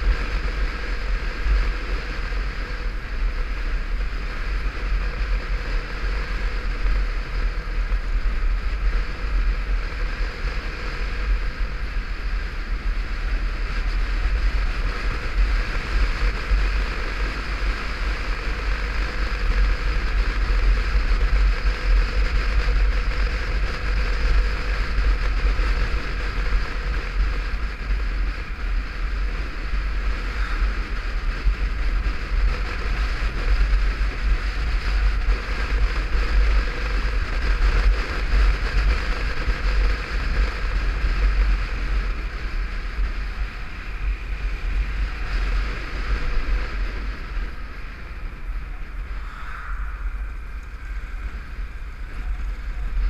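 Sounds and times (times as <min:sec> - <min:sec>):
motorcycle engine drone: 0:00.0 - 0:53.0
road noise: 0:00.0 - 0:53.0
wind buffeting camera: 0:00.0 - 0:53.0.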